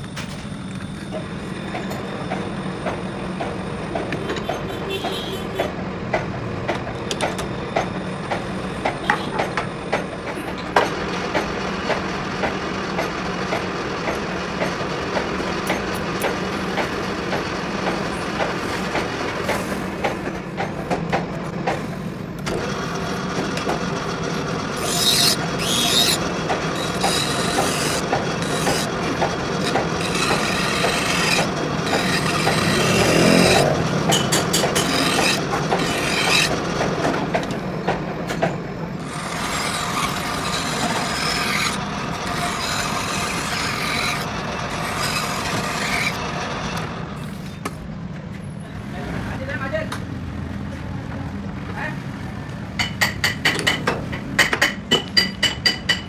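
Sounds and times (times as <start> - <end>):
metal lathe humming: 22.4 - 37.6, 39.0 - 47.1
hand file rasping on metal: 24.8 - 28.9, 29.6 - 36.5, 39.0 - 46.2.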